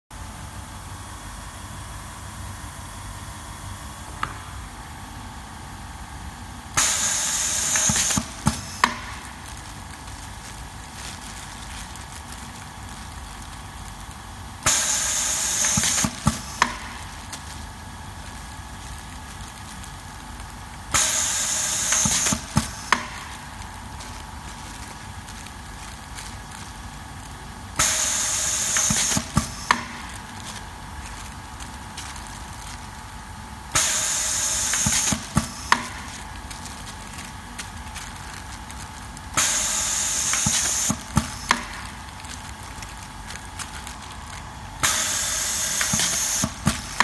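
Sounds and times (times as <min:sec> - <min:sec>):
steady low hum: 0:00.2 - 0:47.0
compressed air hiss: 0:06.8 - 0:08.9, 0:14.7 - 0:16.8, 0:20.9 - 0:23.2, 0:27.8 - 0:29.9, 0:33.8 - 0:35.8, 0:39.4 - 0:41.6, 0:44.8 - 0:47.0.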